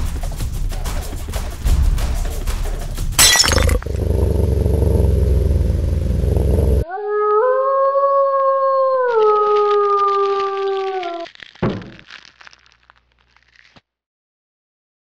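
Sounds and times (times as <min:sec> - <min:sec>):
low rumbling noise: 0:03.6 - 0:06.8
wolf howl: 0:06.8 - 0:11.3.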